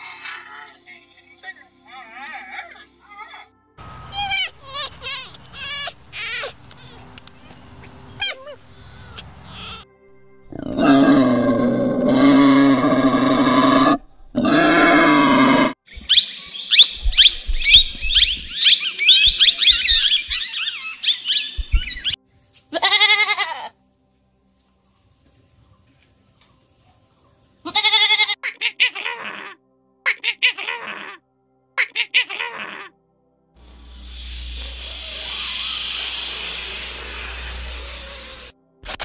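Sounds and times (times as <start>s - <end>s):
wild boar calls: 10.5s - 15.8s, 34.6s - 38.5s
fox yipping: 13.0s - 22.2s
budgerigars chirping: 16.0s - 22.2s.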